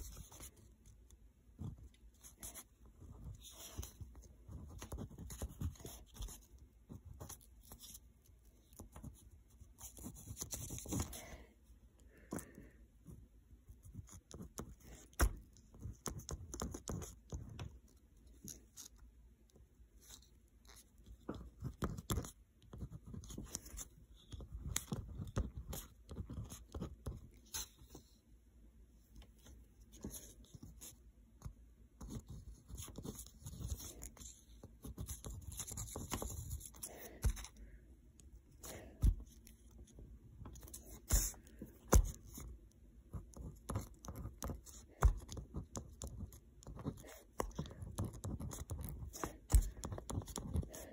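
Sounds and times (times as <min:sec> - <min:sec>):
pen scratching on paper: 0:01.6 - 0:11.2, 0:13.7 - 0:17.7, 0:20.0 - 0:28.0, 0:32.0 - 0:37.5, 0:38.5 - 0:42.5, 0:43.1 - 0:50.9.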